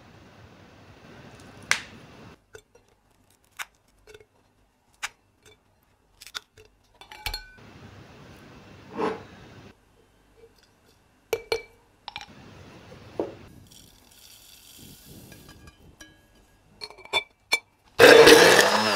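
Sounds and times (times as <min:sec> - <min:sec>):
kitchenware clinks and knocks: 0:07.0 - 0:07.6.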